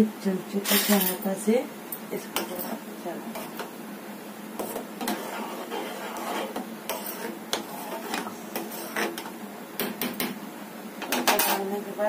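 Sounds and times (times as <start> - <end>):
boiling liquid hiss: 0.7 - 11.2
metal spoon scraping saucepan: 2.4 - 3.6, 4.6 - 9.3.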